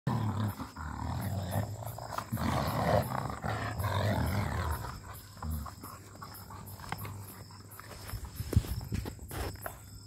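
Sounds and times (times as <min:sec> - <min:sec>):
dogs growling: 0:00.1 - 0:07.8.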